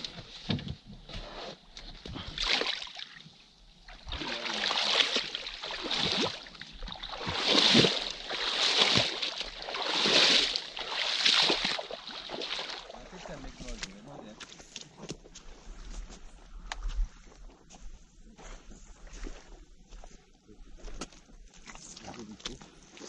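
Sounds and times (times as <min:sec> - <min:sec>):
river water splashing: 0:02.1 - 0:14.5.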